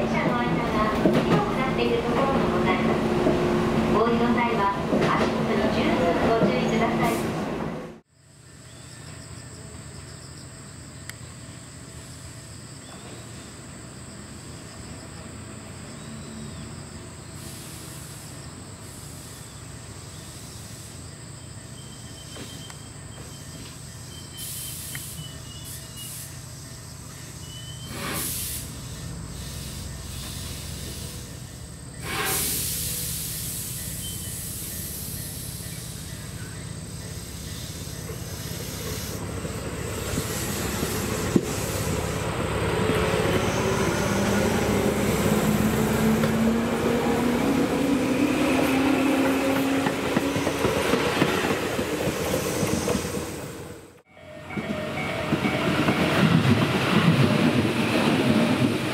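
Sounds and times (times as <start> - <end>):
electric train hum: 0.0 - 58.9
train running noise: 0.0 - 58.9
compressed air hisses: 17.4 - 19.5, 24.4 - 26.5, 27.9 - 36.4, 37.2 - 39.4, 40.0 - 42.2.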